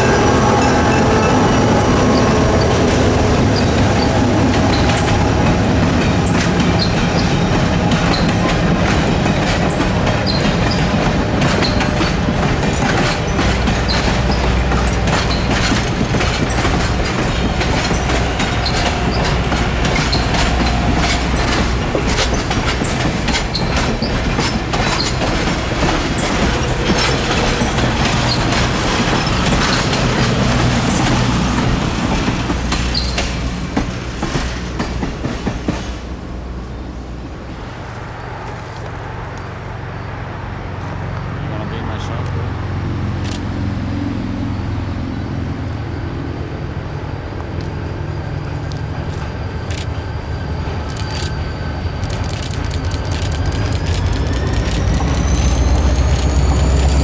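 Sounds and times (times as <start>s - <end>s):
train wheels clicking over rail joints: 0.0s - 39.5s, 46.9s - 57.0s
train low rumble: 0.0s - 57.0s.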